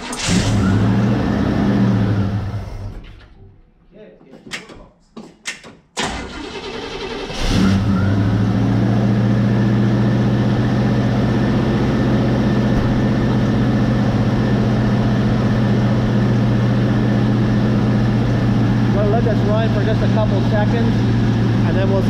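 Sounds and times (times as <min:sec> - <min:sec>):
car engine cranking and idling: 0:00.0 - 0:03.4, 0:06.0 - 0:22.0.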